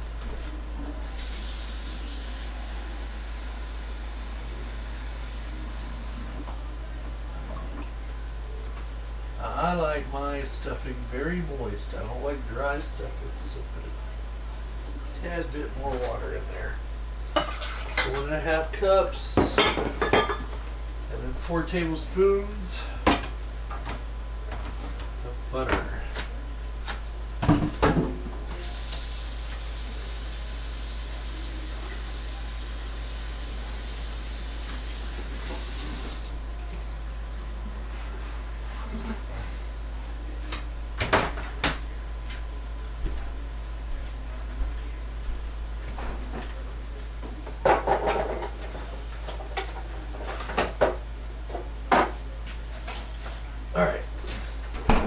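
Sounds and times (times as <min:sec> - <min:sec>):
steady low hum: 0:00.0 - 0:55.0
kitchen things knocking and clattering: 0:19.4 - 0:20.6, 0:47.6 - 0:51.0.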